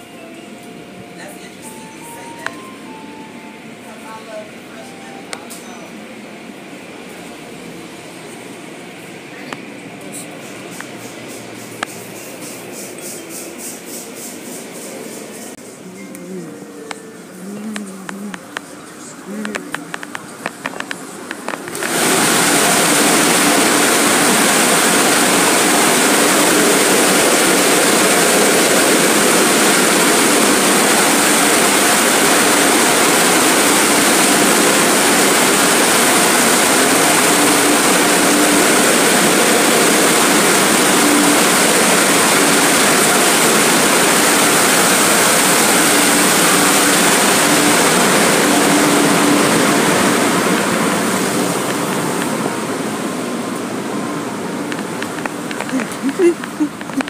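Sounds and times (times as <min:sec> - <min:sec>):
faint hum: 0:15.3 - 0:21.9
car wash equipment rushing: 0:18.4 - 0:57.0.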